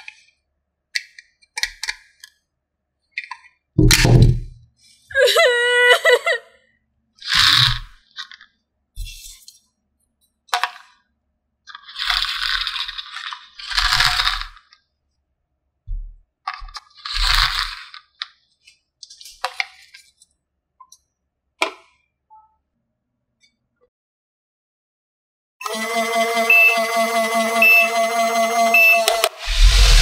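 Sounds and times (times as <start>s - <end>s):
plastic toy pieces rustling and clattering: 7.2s - 9.6s, 11.7s - 14.8s, 16.4s - 20.3s.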